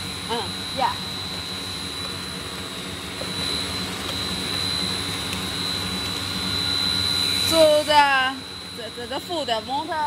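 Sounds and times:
machine humming with high whine: 0.0s - 10.0s.

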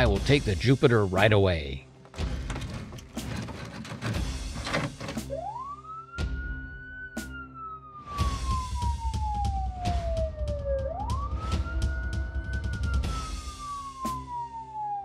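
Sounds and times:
fire engine siren wailing: 2.7s - 15.0s.

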